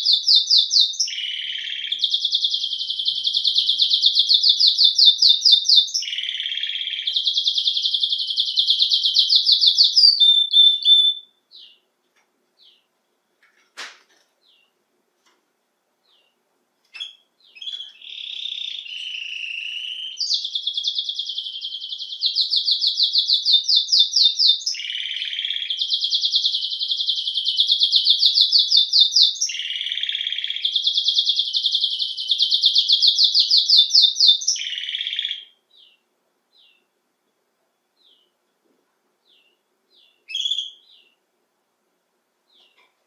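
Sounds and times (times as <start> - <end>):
canary singing trills: 0.0 - 11.9, 16.0 - 36.9, 39.2 - 41.2.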